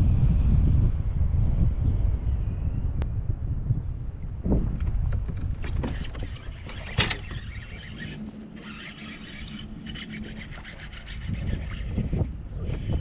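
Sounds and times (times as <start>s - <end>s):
wind buffeting microphone: 0.0s - 13.0s
fishing reel whirring: 5.7s - 13.0s.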